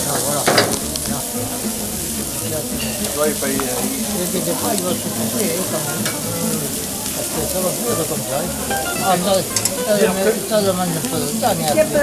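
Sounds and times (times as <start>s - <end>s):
meat sizzling on a grill: 0.0s - 12.0s
murmur of voices: 0.0s - 12.0s.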